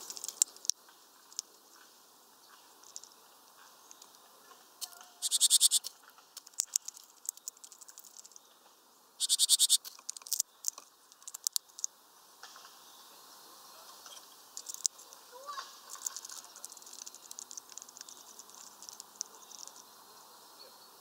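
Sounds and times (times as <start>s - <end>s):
bird pecking and tapping: 0.0s - 1.5s, 4.8s - 8.4s, 9.2s - 11.9s, 14.6s - 15.2s, 15.9s - 19.8s.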